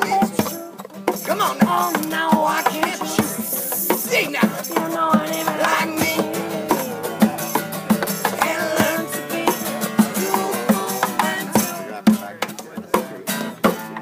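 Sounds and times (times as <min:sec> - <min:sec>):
plucked-string melody: 0:00.0 - 0:14.0
steady beat: 0:00.0 - 0:14.0.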